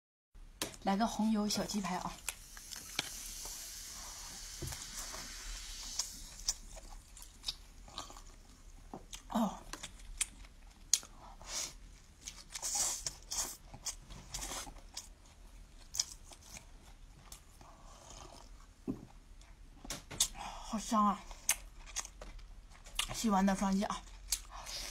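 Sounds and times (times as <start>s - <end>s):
faint steady hiss: 0.5s - 9.4s
person chewing crunchy food: 2.2s - 3.5s, 4.4s - 19.6s, 21.3s - 23.2s, 23.9s - 24.9s.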